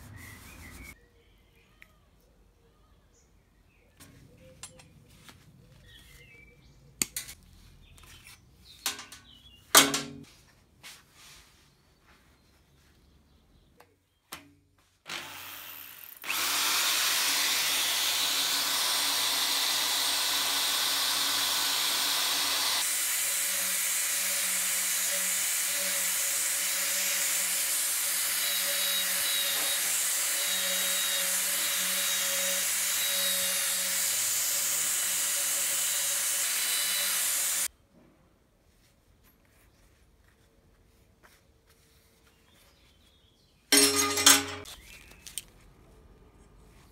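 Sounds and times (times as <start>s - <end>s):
drill spinning abrasive wheel on steel: 15.1s - 37.7s.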